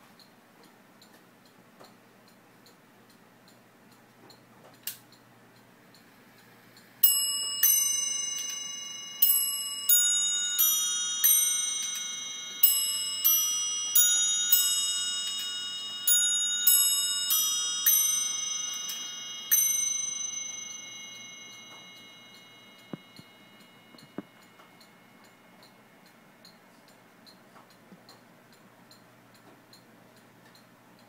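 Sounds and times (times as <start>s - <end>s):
clock bells chiming: 7.0s - 25.8s.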